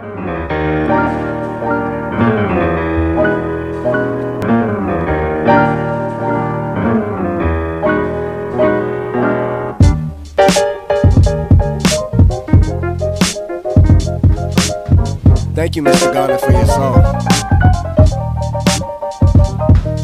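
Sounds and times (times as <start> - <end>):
piano chords: 0.0 - 20.0
deep bass: 11.2 - 13.2, 13.8 - 15.9, 16.5 - 18.8, 19.4 - 20.0.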